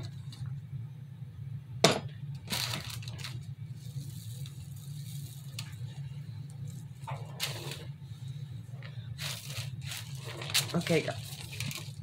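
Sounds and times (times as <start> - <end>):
low hum: 0.0 - 12.0
rustle of handling: 2.5 - 12.0.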